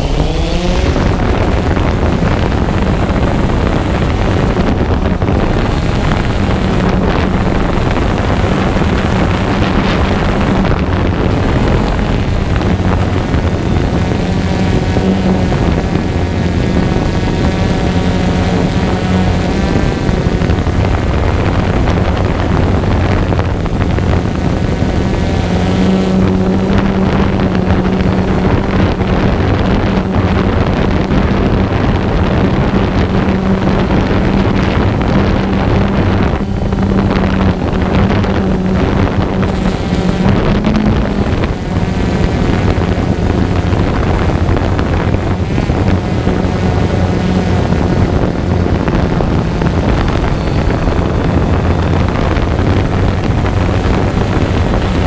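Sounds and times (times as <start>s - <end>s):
drone propellers humming: 0.0s - 55.0s
wind noise: 0.0s - 55.0s.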